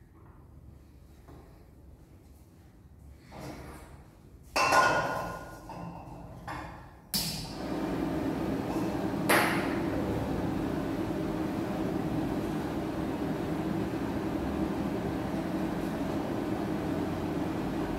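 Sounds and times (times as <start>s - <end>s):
gas burner flame rushing: 7.2s - 17.9s.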